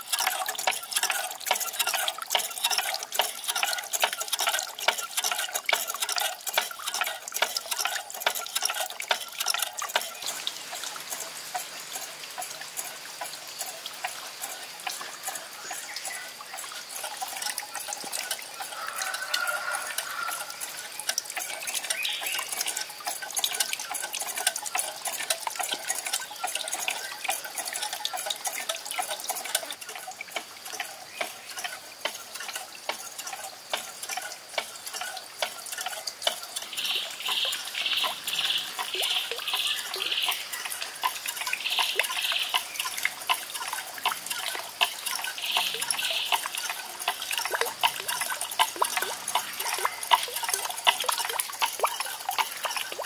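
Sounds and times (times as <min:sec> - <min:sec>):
water trickling and splashing: 0:00.0 - 0:53.0
high pulsed chirping call: 0:36.7 - 0:40.7, 0:41.4 - 0:43.0, 0:45.2 - 0:46.6.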